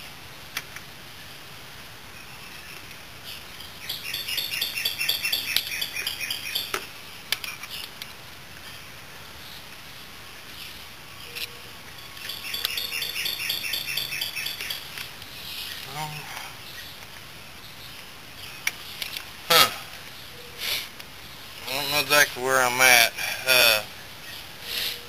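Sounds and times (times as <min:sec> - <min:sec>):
bird chirping rapidly: 0:03.7 - 0:06.8, 0:12.2 - 0:16.0.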